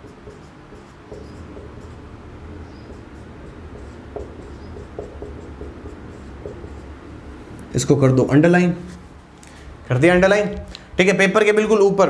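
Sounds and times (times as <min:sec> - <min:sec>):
marker pen writing on whiteboard: 0:00.0 - 0:08.2
low steady hum: 0:00.0 - 0:11.1.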